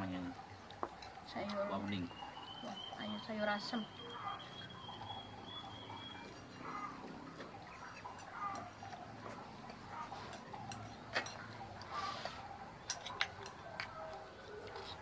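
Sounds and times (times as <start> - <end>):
spoons and plates clinking: 7.7 - 13.9.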